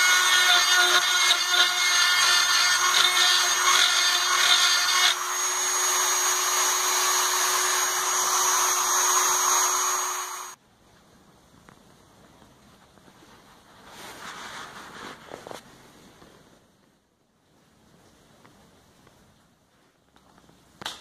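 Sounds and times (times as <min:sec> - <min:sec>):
rotary tool grinding plywood: 0:00.0 - 0:10.6.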